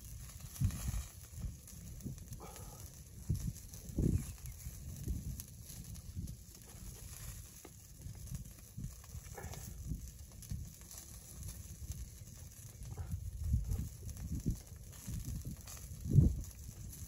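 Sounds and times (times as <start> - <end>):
rain drops tapping on tent: 0.0 - 17.0.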